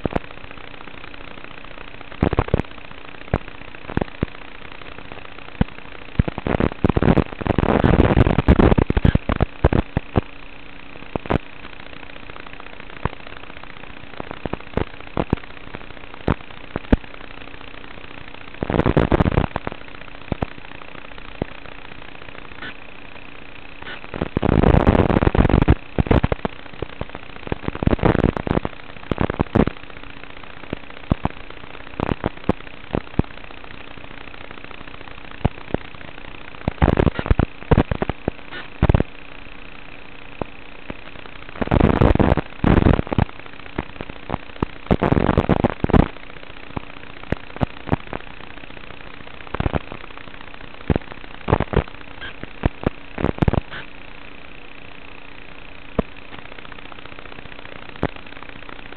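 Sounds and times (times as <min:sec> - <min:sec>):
crackling static and pops: 0:00.0 - 0:58.9
steady hum: 0:00.0 - 0:58.9.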